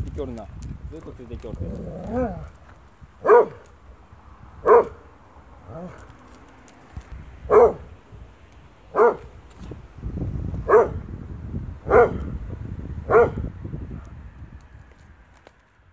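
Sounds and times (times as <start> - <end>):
dog barking: 3.2 - 3.6, 4.6 - 5.0, 7.5 - 7.9, 8.9 - 9.3, 10.7 - 11.0, 11.9 - 12.2, 13.1 - 13.4.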